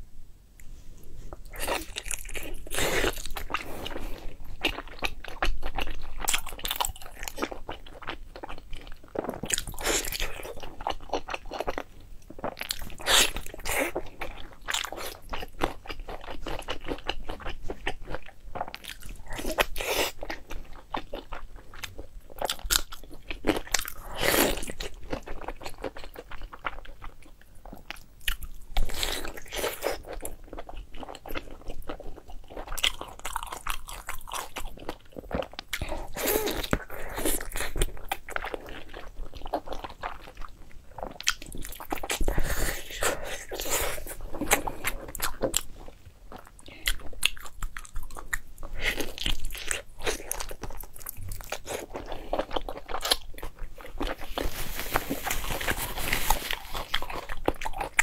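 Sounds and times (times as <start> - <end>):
wet chewing: 28.2 - 58.0.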